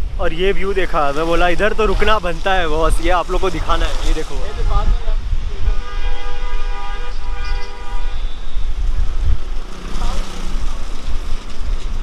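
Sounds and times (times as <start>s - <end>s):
wind rumble on microphone: 0.0s - 12.0s
long horn blast: 5.5s - 8.6s.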